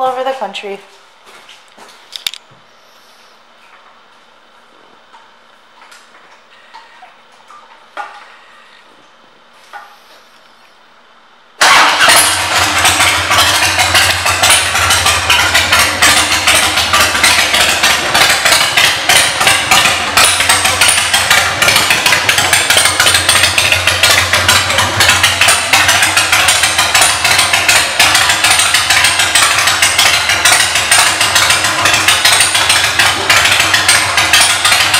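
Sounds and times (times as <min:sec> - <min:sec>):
motorcycle engine idling: 0:11.7 - 0:34.9.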